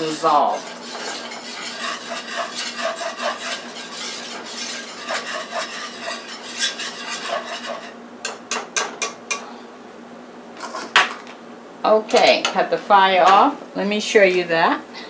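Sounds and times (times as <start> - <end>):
utensil scraping metal frying pan: 0.0 - 9.2, 10.6 - 11.0.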